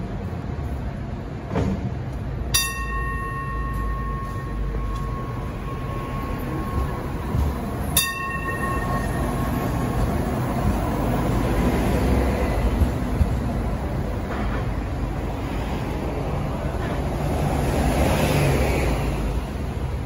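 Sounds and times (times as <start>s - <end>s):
light rail car rumbling: 0.0s - 20.0s
tram warning gong ringing: 2.5s - 14.4s.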